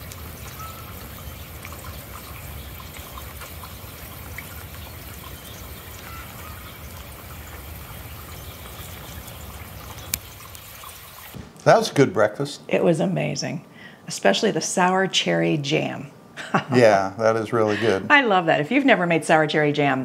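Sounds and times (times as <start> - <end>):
rain on wet pavement: 0.0 - 11.4.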